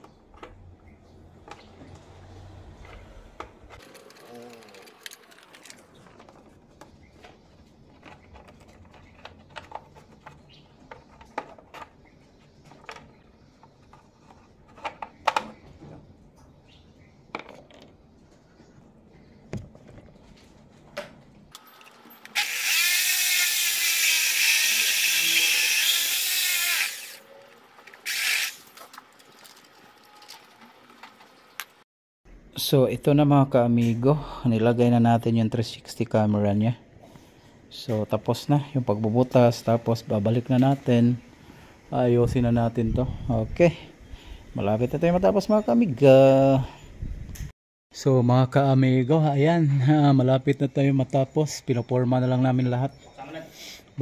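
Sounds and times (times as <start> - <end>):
power drill running: 21.8 - 27.2, 28.0 - 28.6.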